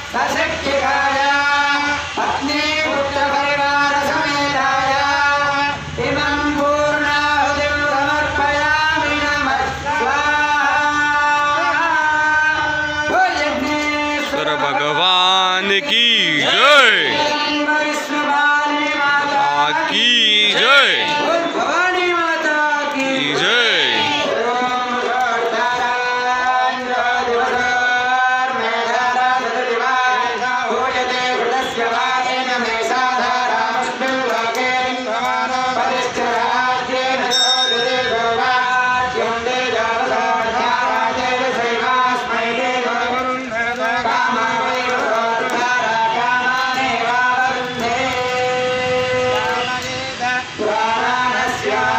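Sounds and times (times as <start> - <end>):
men chanting: 2.4 - 37.3, 38.2 - 51.9
voices chanting: 14.2 - 17.6, 19.0 - 21.5, 22.9 - 24.5.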